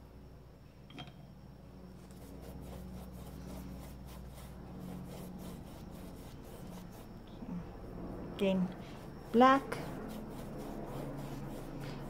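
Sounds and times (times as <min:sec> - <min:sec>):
paintbrush scrubbing canvas: 0:02.0 - 0:12.0.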